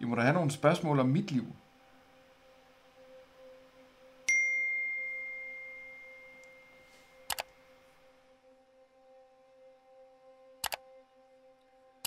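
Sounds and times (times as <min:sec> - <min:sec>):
quick clicks: 0:07.3 - 0:07.5.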